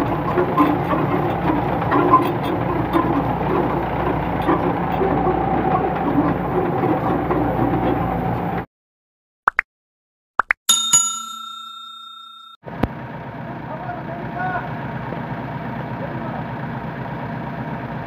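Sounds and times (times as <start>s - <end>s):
rotary tiller blades churning: 0.0s - 8.7s
tractor engine drone: 0.0s - 8.7s, 12.7s - 18.0s.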